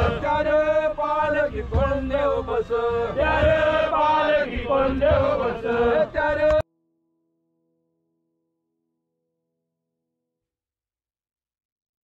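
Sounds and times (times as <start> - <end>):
men chanting in unison: 0.0 - 6.6.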